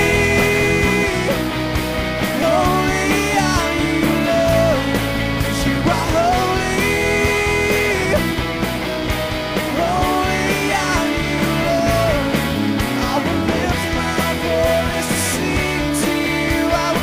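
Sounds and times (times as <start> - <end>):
person singing long notes: 0.0 - 1.4
drums: 0.0 - 17.0
electric guitars: 0.0 - 17.0.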